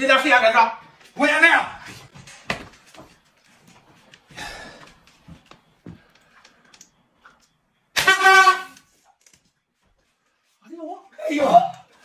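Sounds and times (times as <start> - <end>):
toy horn blaring: 7.9 - 9.1.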